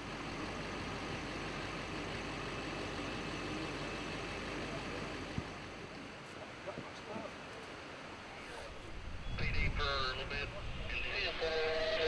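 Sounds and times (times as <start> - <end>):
vehicle engine running: 0.0 - 6.0
street traffic noise: 0.0 - 12.0.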